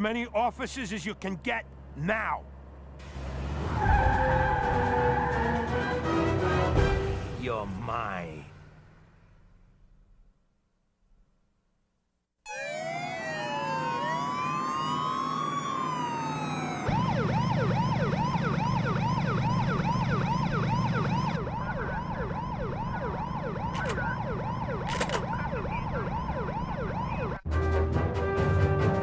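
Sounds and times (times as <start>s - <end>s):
cartoon sirens wailing: 3.7s - 6.2s, 12.5s - 27.5s
fast yelp siren: 12.5s - 27.4s.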